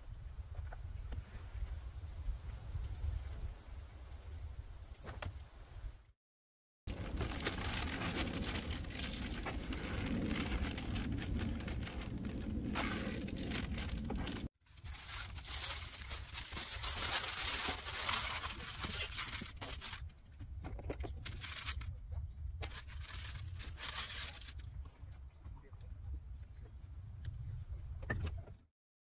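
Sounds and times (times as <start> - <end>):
low rumble: 6.9 - 20.0
small clicks and crackles: 6.9 - 22.0
rustling and crinkling: 6.9 - 25.2.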